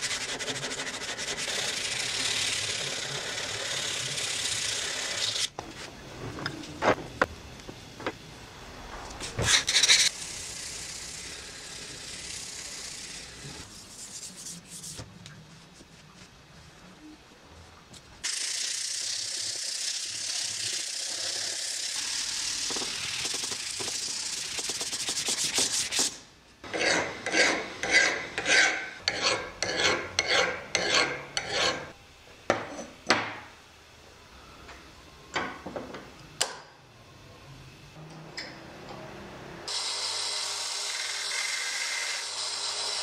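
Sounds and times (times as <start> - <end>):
file scraping cast iron: 26.6 - 32.0.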